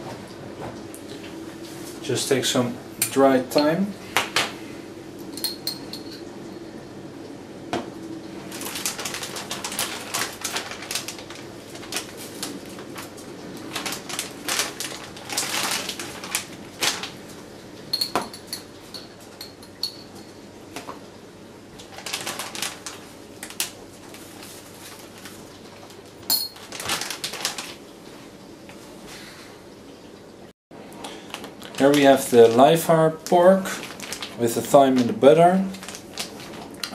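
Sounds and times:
glass jar clinks: 5.3s - 6.2s, 17.9s - 20.4s, 26.3s - 26.6s
plastic bags crinkling: 8.4s - 17.4s, 21.8s - 27.9s, 31.0s - 36.9s.

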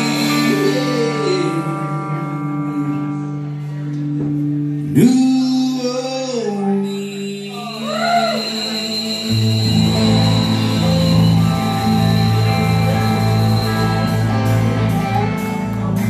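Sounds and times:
rock band playing: 0.0s - 16.0s
heavy bass line: 8.6s - 16.0s.

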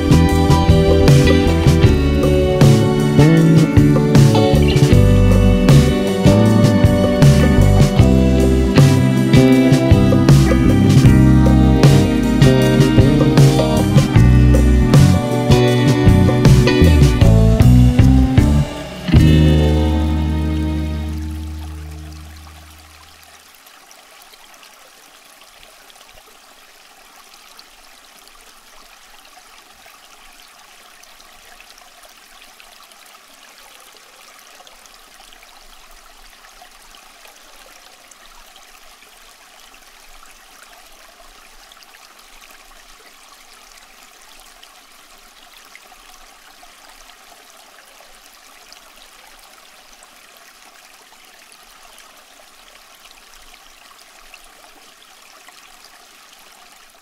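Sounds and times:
running water trickling: 0.0s - 57.0s.

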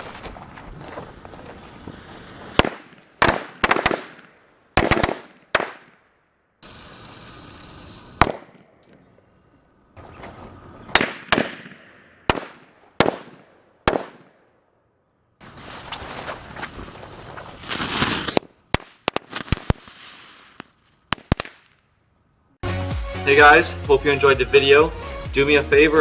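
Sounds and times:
firecrackers banging: 1.4s - 6.0s, 6.6s - 8.8s, 10.9s - 14.3s, 15.4s - 21.8s
steady hiss: 6.6s - 8.5s.

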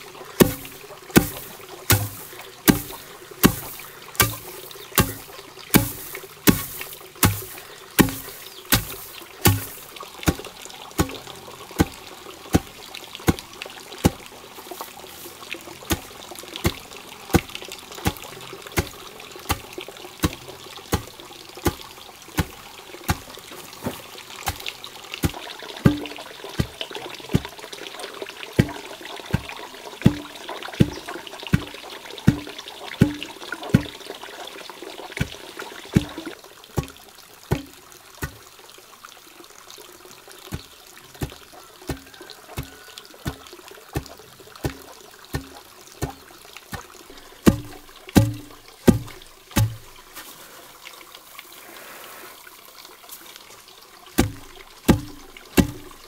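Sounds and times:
water trickling: 0.0s - 56.0s
wooden pestle pounding rice: 0.4s - 11.2s, 15.9s - 23.3s, 25.2s - 26.8s, 32.3s - 34.0s, 44.0s - 50.0s, 54.2s - 56.0s.

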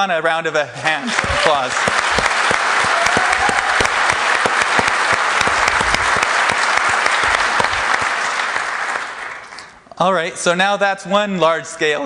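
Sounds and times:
audience applauding: 0.8s - 9.8s
single nearer claps: 1.2s - 9.7s.

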